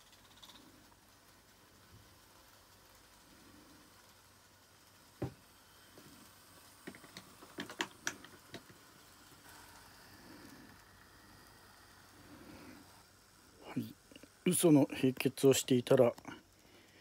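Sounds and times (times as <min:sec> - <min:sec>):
faint room noise: 0:00.0 - 0:17.0
small clicks and taps: 0:06.8 - 0:08.9.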